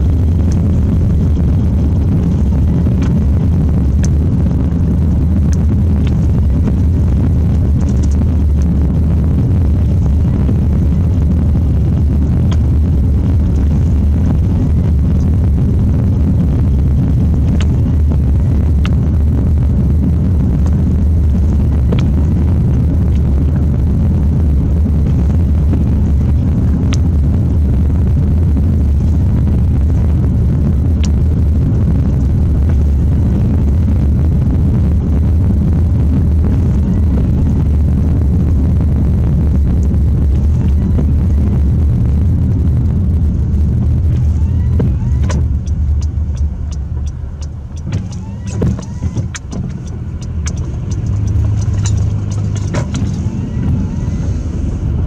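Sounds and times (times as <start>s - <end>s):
car cabin road drone: 0.0s - 55.0s
ticks and clicks: 17.4s - 17.9s, 21.4s - 23.3s, 30.9s - 31.3s, 43.8s - 53.3s.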